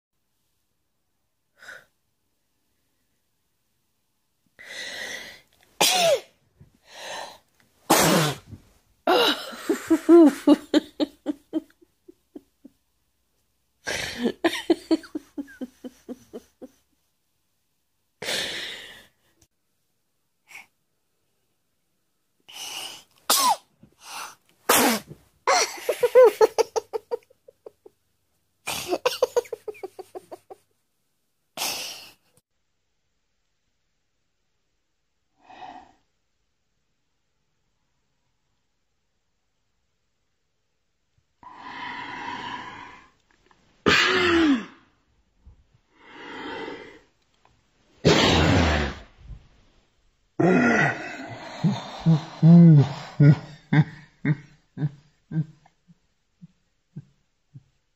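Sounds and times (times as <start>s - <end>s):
woman sneezing: 5.8s - 6.3s, 48.0s - 49.0s
woman giggling: 9.1s - 12.8s, 13.9s - 16.8s, 25.5s - 27.9s, 28.7s - 30.6s, 52.5s - 55.7s.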